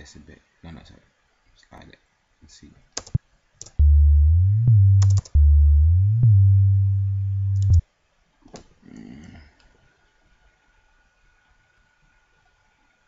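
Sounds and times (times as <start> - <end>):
deep synth bass sliding: 3.8 - 7.8.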